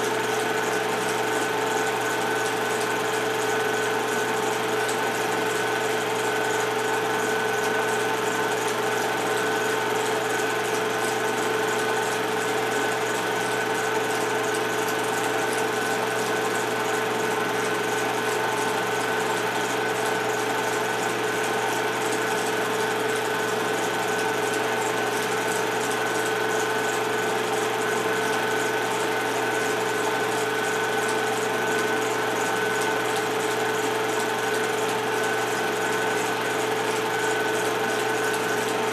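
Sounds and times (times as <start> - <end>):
film projector whirring: 0.0 - 38.9.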